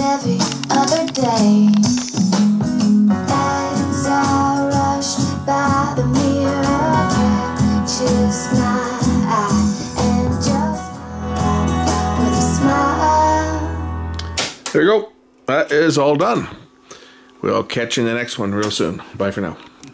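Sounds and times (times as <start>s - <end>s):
person singing: 0.0s - 2.2s, 3.2s - 14.4s
guitar: 0.0s - 14.7s.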